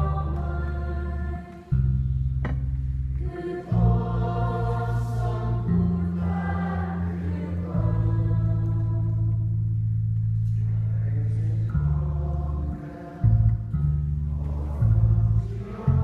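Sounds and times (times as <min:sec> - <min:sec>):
singing voices: 0:00.0 - 0:02.0, 0:03.2 - 0:09.8, 0:10.4 - 0:16.0.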